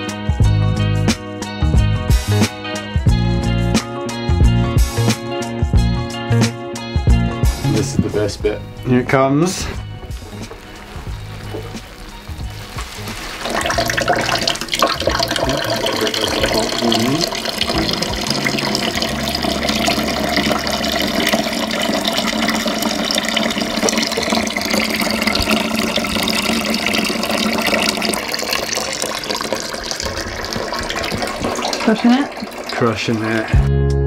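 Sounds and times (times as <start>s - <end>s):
juice pouring into a plastic bucket: 10.0s - 33.7s.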